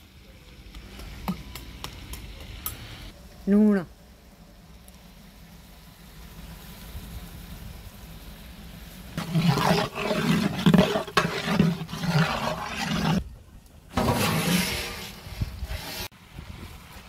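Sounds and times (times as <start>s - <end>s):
faint hiss: 2.8s - 9.2s
metal spatula scraping a pot: 9.2s - 13.2s, 14.0s - 16.1s.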